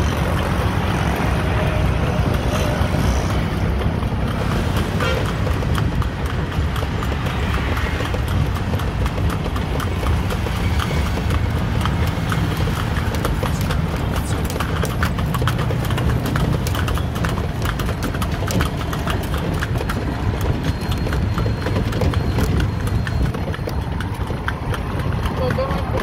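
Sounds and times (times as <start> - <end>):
horse hooves clip-clopping: 0.0 - 26.0
low rumble of cart ride: 0.0 - 26.0.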